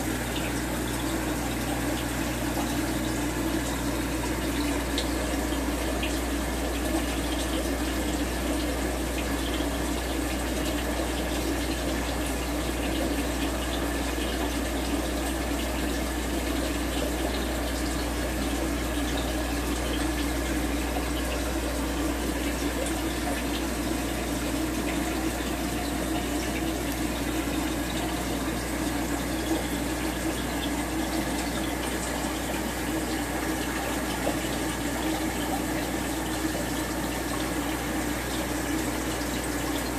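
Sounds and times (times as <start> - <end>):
bubbling water rushing: 0.0 - 39.9.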